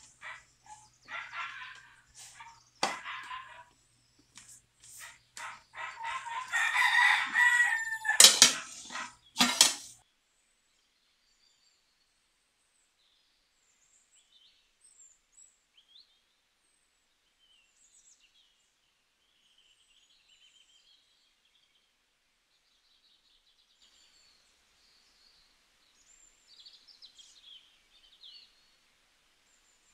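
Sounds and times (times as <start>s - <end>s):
rooster crowing: 5.8s - 9.1s.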